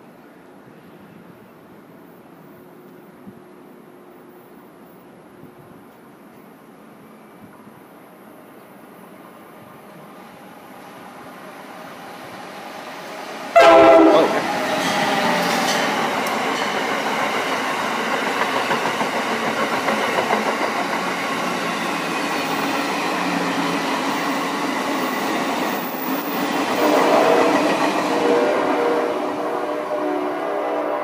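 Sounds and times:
train rushing past: 8.9s - 31.0s
train horn blasting: 13.5s - 15.7s, 26.7s - 31.0s
wheels clattering over rails: 14.4s - 23.5s.

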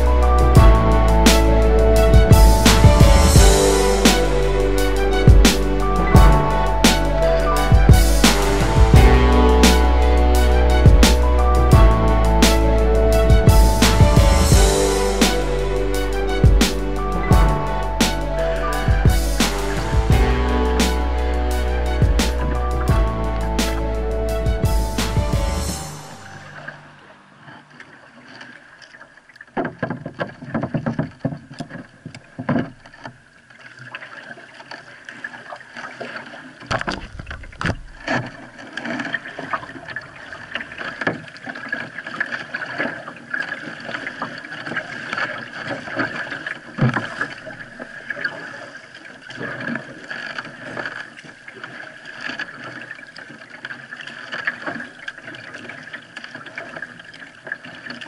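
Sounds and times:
paddle strokes: 0.0s - 58.0s
water splashing against hull: 0.0s - 58.0s.

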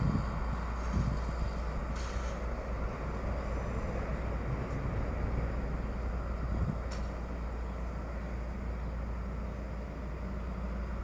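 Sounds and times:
distant diesel train rumble: 0.0s - 11.0s
brief hiss: 1.9s - 2.5s.

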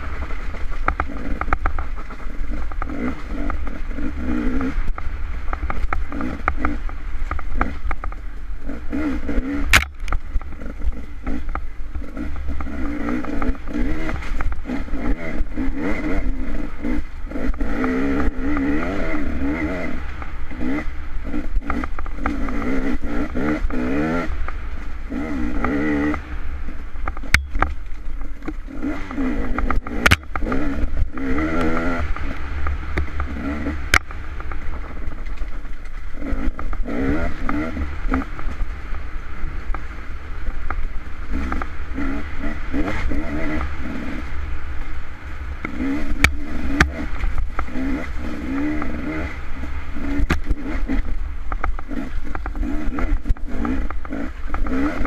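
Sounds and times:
dirt bike engine revving: 0.0s - 55.0s
sharp clacks: 27.0s - 36.8s.

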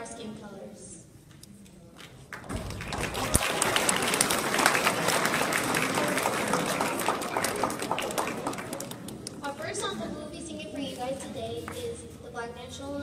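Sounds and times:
children applauding: 2.3s - 9.3s.

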